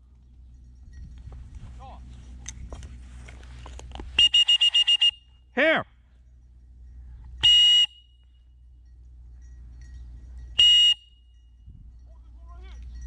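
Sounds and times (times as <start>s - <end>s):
dog whistle blasts: 4.2s - 5.3s, 7.4s - 8.2s, 10.6s - 11.2s.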